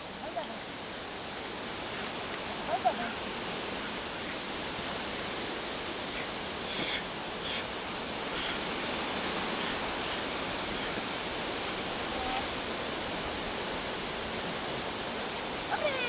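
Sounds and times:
steady outdoor hiss: 0:00.0 - 0:16.0
short high hiss: 0:05.1 - 0:16.0.

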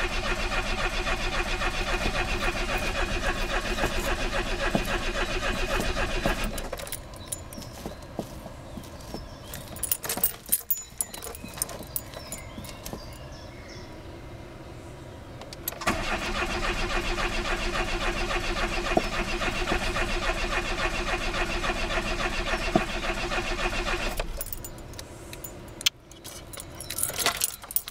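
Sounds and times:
starter cranking engine: 0:00.0 - 0:07.7, 0:15.7 - 0:25.5
keys jangling: 0:06.4 - 0:13.2, 0:24.1 - 0:27.9.

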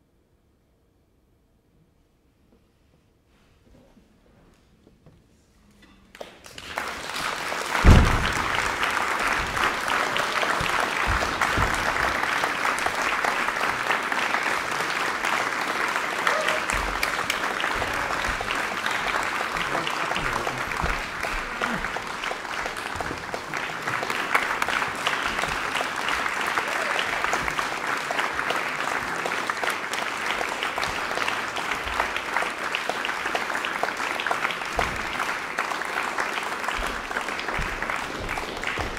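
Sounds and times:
audience applauding: 0:06.1 - 0:38.9
loud low thump: 0:07.8 - 0:08.8.

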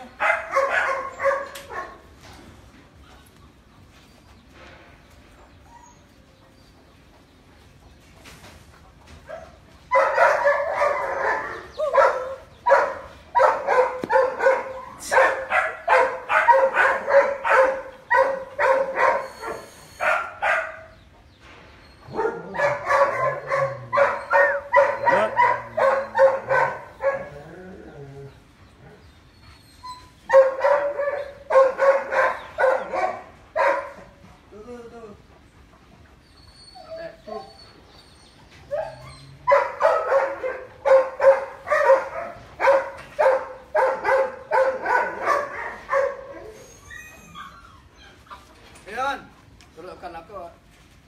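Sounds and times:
dog barking rapidly: 0:00.2 - 0:02.0, 0:09.9 - 0:20.9, 0:22.1 - 0:27.4, 0:30.3 - 0:34.0, 0:39.5 - 0:46.4.

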